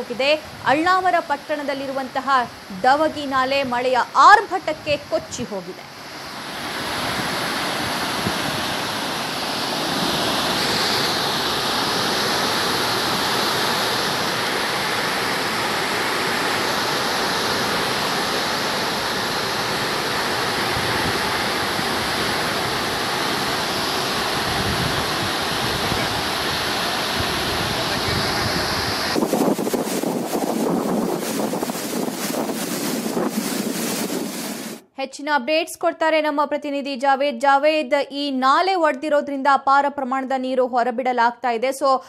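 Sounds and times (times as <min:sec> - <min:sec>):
floodwater rushing: 0:06.0 - 0:34.8.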